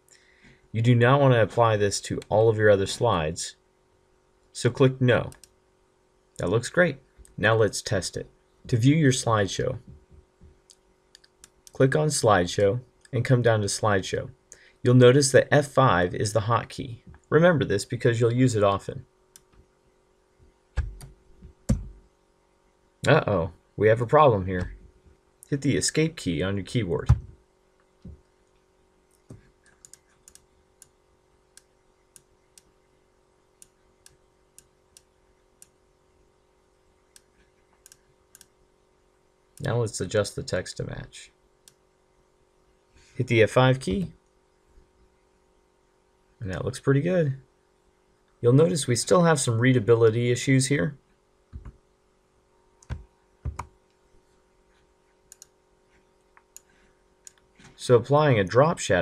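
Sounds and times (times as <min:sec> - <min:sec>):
low steady hum: 0:00.0 - 0:59.0
computer mouse clicks: 0:29.2 - 0:30.9, 0:37.1 - 0:38.5, 0:55.3 - 0:55.6.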